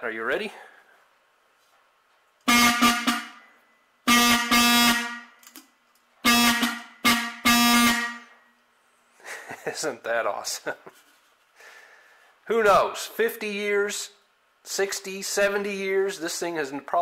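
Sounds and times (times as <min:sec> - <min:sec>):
buzzy car horn honks: 0:02.4 - 0:05.4, 0:06.2 - 0:08.4.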